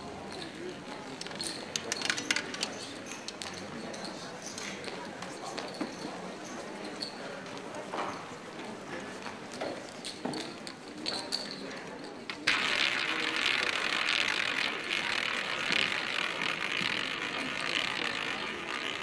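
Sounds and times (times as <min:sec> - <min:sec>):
low room murmur: 0:00.0 - 0:19.0
roulette ball whirring rattle: 0:01.0 - 0:03.6, 0:12.1 - 0:19.0.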